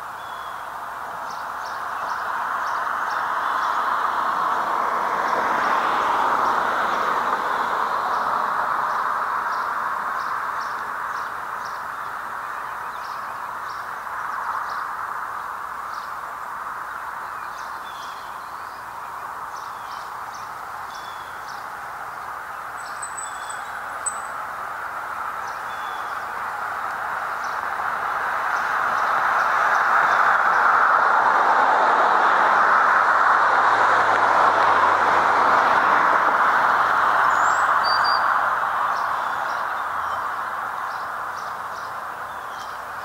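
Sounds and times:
steady background noise: 0.0 - 43.0
small birds chirping: 16.8 - 24.5, 25.3 - 30.6, 37.2 - 43.0.

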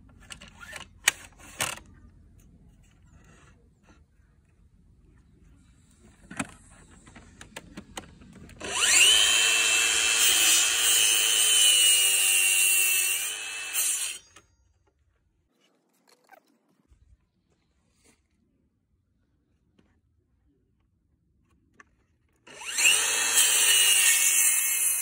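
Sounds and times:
circular saw cutting wood: 8.6 - 14.4, 22.5 - 25.0.

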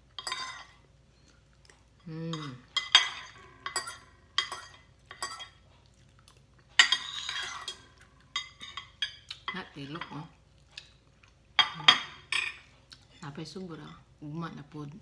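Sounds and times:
cutlery scraping ceramic plate: 0.2 - 0.8, 6.8 - 9.0.

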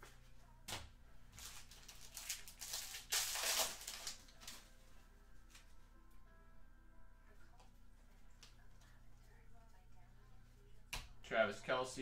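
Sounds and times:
cards rustling and crinkling: 1.3 - 4.7.

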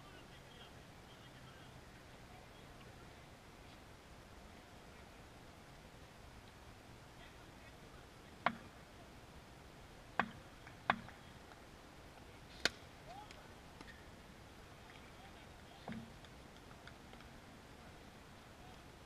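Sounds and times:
cricket bat tapping hard ground: 10.2 - 11.2.

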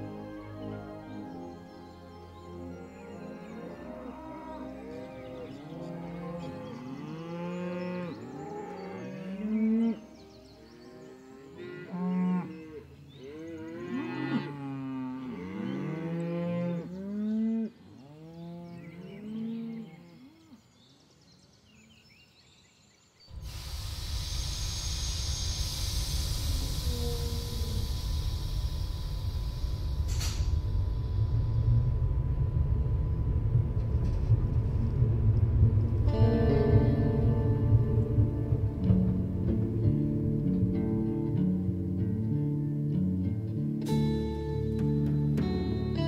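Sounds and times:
cattle mooing: 11.6 - 20.0
rumbling noise with high hiss: 23.3 - 44.8.

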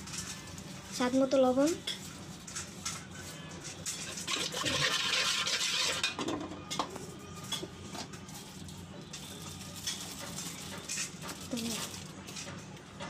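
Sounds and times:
metal spatula scraping pot: 1.7 - 6.3.

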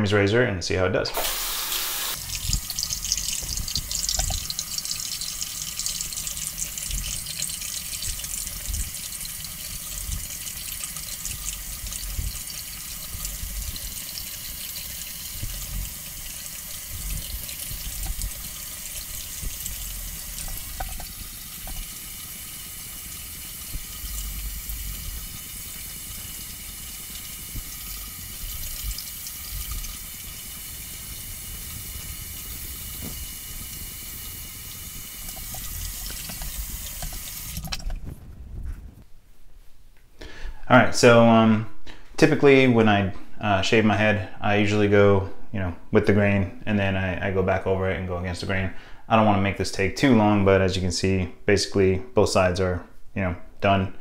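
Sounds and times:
tap running into sink: 2.2 - 22.0, 32.7 - 33.9, 35.1 - 38.0
soft low bumps: 37.8 - 39.7.

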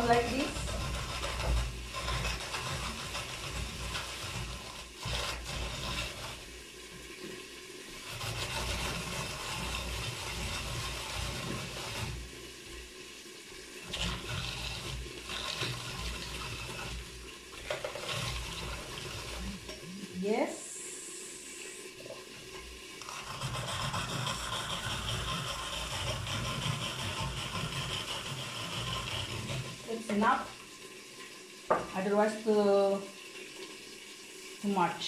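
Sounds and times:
food processor shredding cabbage: 0.0 - 6.5, 8.0 - 12.3, 13.8 - 20.2, 23.0 - 30.6.

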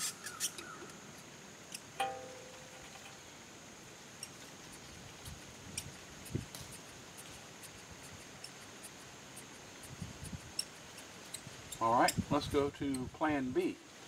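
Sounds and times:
brake-bleeder pump clicks and squeaks: 0.0 - 0.8, 4.2 - 13.2.

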